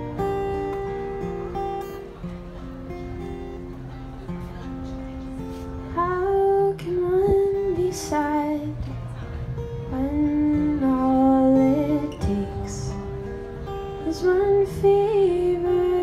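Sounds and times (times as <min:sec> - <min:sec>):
acoustic guitar strumming: 0:00.0 - 0:16.0
woman singing: 0:05.9 - 0:09.0, 0:09.9 - 0:13.0, 0:14.0 - 0:16.0.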